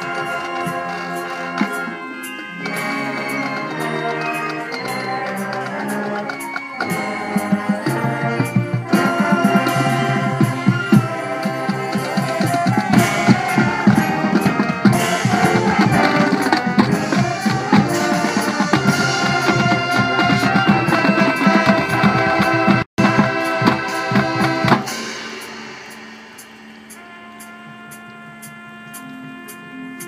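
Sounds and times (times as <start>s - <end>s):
drum line beating steady rhythm: 0.0s - 30.0s
marching band playing: 0.0s - 30.0s
sustained wind chords: 0.0s - 30.0s.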